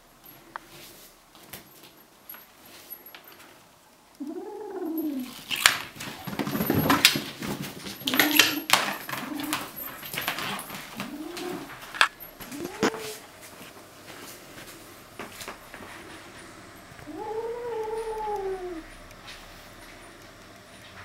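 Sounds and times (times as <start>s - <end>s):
kitten hooting growls: 4.2s - 5.5s, 8.0s - 9.8s, 10.9s - 13.3s, 16.9s - 19.2s
knocks and scuffling: 5.1s - 21.0s.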